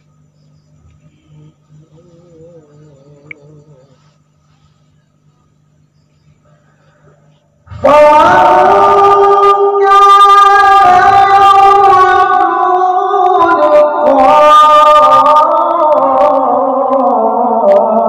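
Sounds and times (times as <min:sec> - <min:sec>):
man reciting melodically: 0:01.0 - 0:04.2.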